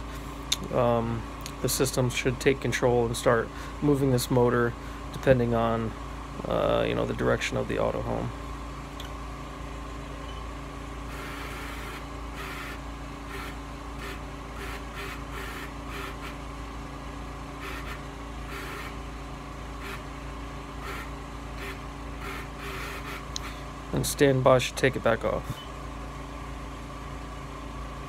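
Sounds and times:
electric motor humming in bursts: 10.9s - 24.1s.

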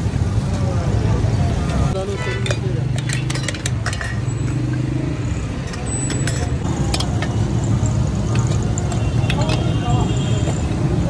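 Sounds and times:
street traffic hum: 0.0s - 11.0s
metal lids clinking on pots: 2.0s - 9.8s.

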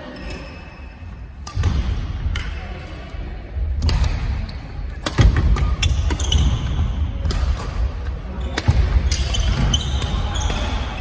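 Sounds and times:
rackets striking shuttlecock: 3.8s - 11.0s.

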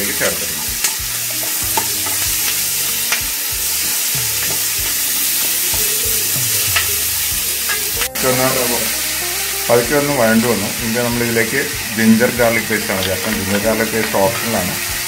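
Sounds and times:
vegetables sizzling in pan: 0.0s - 15.0s
spatula tapping and scraping pan: 0.1s - 8.1s.

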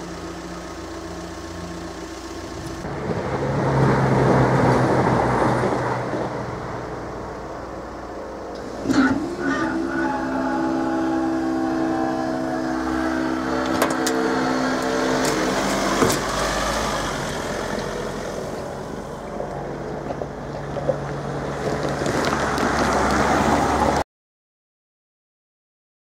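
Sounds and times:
vehicles driving over crossing: 0.0s - 24.0s
steady pitched hum: 10.2s - 15.9s.

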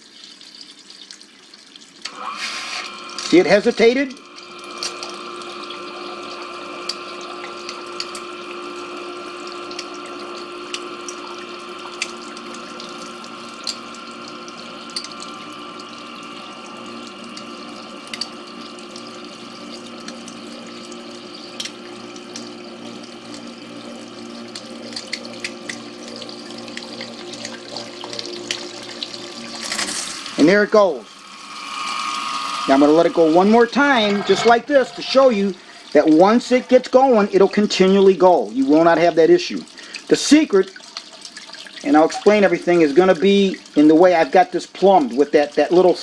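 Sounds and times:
water trickling and splashing: 0.0s - 46.0s
drip-like ticks: 0.1s - 2.2s, 6.9s - 8.3s, 9.4s - 16.0s, 17.3s - 23.4s, 39.5s - 42.4s
sump pump humming: 2.0s - 46.0s.

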